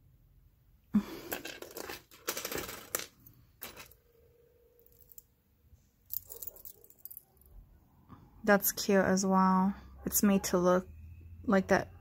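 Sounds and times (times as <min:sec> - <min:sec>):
metal jewelry clinking: 0:01.2 - 0:05.4, 0:06.0 - 0:07.5.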